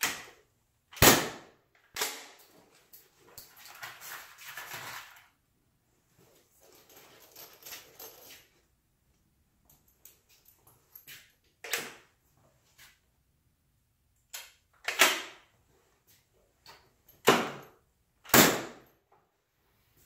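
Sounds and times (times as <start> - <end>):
nail gun firing: 1.0 - 2.4, 14.9 - 15.4, 17.2 - 17.6, 18.3 - 18.8
tool handling clicks and knocks: 6.4 - 13.0, 14.2 - 17.9.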